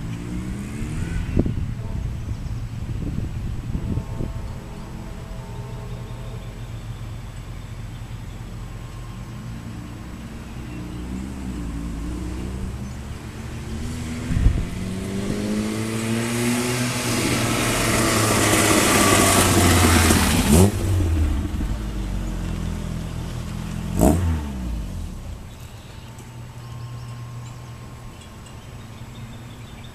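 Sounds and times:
car accelerating and driving by: 0.0s - 28.1s
exhaust bangs: 9.5s - 25.6s.

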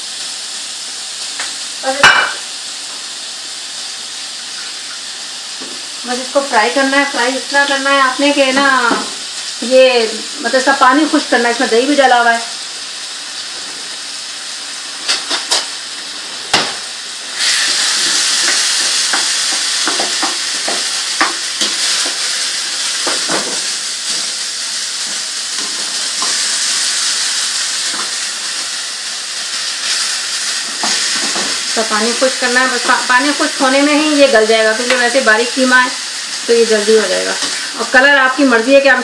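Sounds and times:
meat sizzling in a frying pan: 0.0s - 39.0s
spatula scraping and tapping pan: 18.0s - 22.3s.

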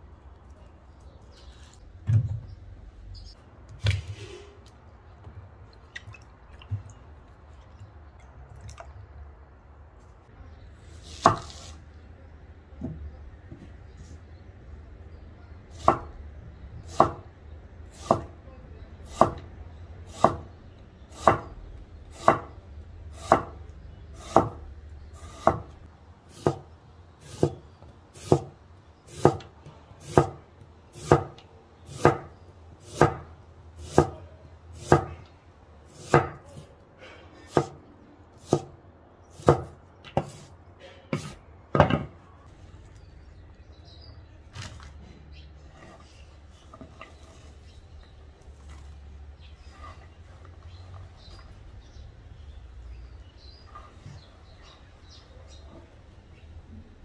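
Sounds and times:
knife chopping on cutting board: 16.9s - 17.2s, 18.0s - 18.4s, 19.1s - 19.4s, 20.1s - 20.5s, 21.1s - 21.5s, 22.1s - 22.5s, 23.2s - 23.6s, 24.2s - 24.6s, 25.2s - 25.7s, 26.3s - 27.6s, 28.2s - 28.5s, 29.1s - 30.4s, 31.0s - 33.2s, 33.8s - 34.2s, 34.8s - 35.1s, 35.9s - 36.7s, 37.5s - 37.8s, 38.4s - 38.7s, 39.4s - 40.5s.

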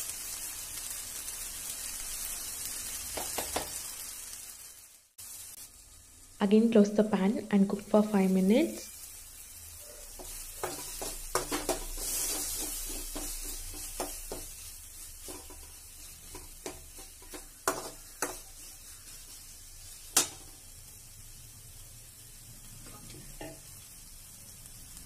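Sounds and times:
faint sizzle: 0.0s - 25.0s
spoon scraping metal pan: 9.8s - 14.5s, 15.2s - 18.8s.

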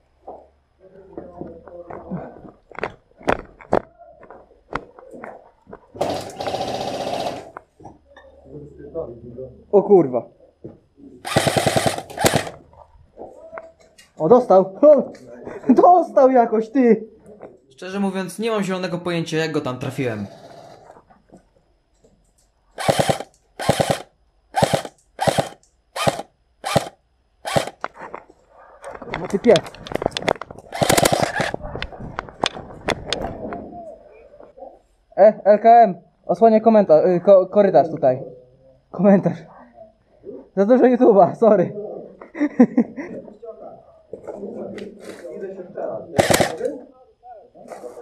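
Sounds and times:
airsoft gun rapid fire: 6.0s - 7.6s, 11.2s - 12.6s, 22.8s - 27.8s, 30.7s - 31.6s, 46.2s - 46.7s.

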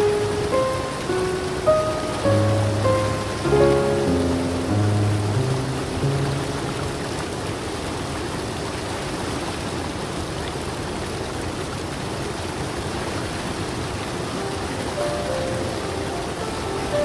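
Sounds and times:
stream cascading over rocks: 0.0s - 17.0s.

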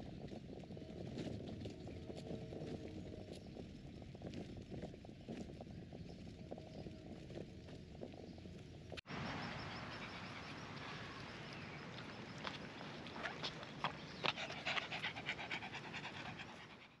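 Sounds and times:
dog panting: 13.8s - 17.0s.

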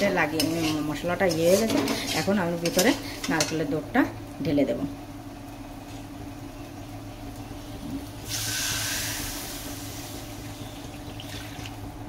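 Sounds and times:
liquid hissing in a hot pan: 7.7s - 11.1s.

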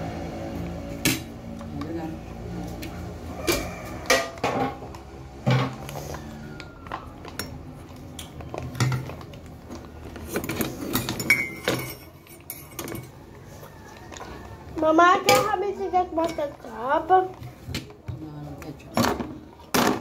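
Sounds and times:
dishes and cutlery clinking: 3.4s - 5.9s, 6.8s - 9.4s, 10.2s - 14.3s, 15.2s - 20.0s.

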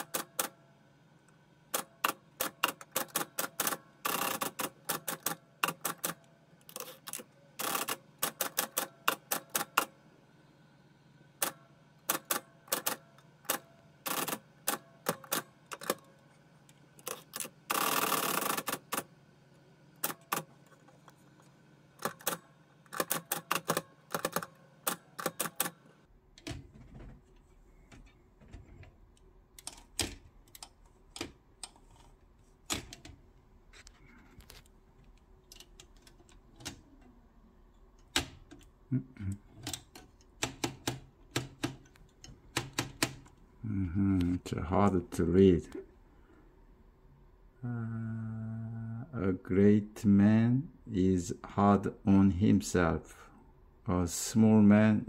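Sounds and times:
longer continuous typewriter noise: 0.0s - 0.6s, 1.7s - 9.9s, 11.4s - 16.1s, 17.0s - 19.1s, 20.0s - 20.5s, 22.0s - 25.9s
typewriter keystroke clicks: 22.0s - 25.8s, 39.6s - 43.3s.

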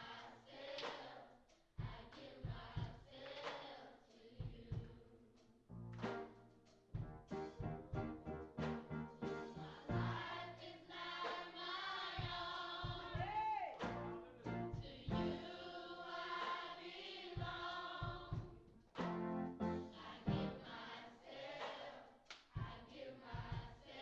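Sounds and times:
choir singing gospel: 0.0s - 5.4s, 6.0s - 24.0s
low bass beat: 7.0s - 10.3s, 13.8s - 15.4s.

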